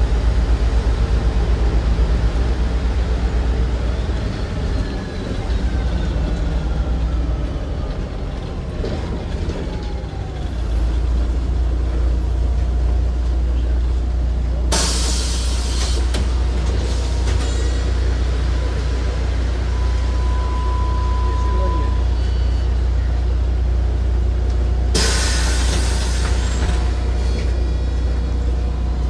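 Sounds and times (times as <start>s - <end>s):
bus engine whine and idle: 0.0s - 29.0s.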